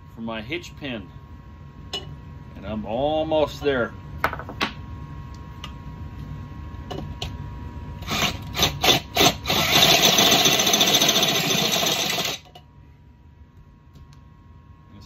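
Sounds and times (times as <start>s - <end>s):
cordless drill cutting metal: 8.0s - 12.4s.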